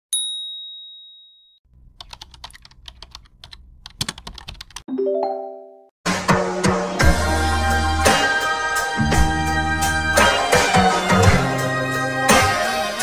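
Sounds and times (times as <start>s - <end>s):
computer keyboard key clicks: 2.0s - 4.8s.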